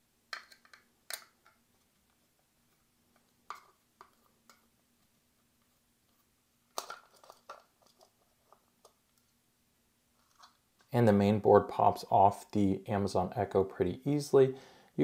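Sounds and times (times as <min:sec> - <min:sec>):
plastic clicks and rattles: 0:00.3 - 0:01.6, 0:06.7 - 0:09.2.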